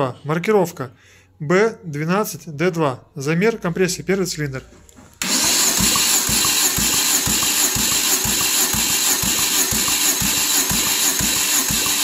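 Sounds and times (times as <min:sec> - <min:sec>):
starter motor cranking engine: 0:05.2 - 0:12.0.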